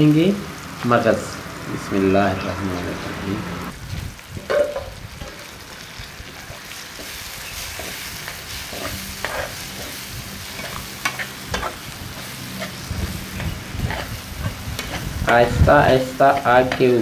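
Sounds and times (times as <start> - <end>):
food sizzling in frying pan: 0.0 - 17.0
metal spatula scraping pan: 7.0 - 17.0.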